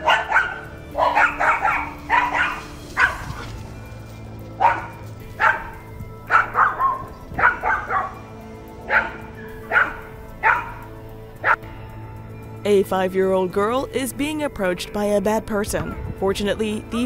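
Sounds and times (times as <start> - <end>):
small dog yapping: 0.0 - 3.5
background music: 0.0 - 17.0.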